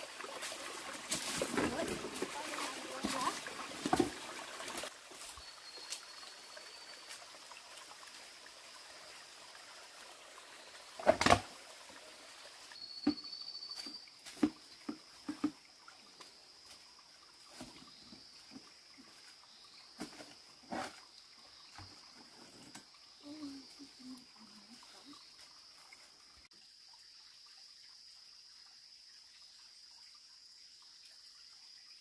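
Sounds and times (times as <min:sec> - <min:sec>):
water trickling: 0:00.0 - 0:32.0
barefoot footsteps on rock and leaves: 0:00.4 - 0:05.4.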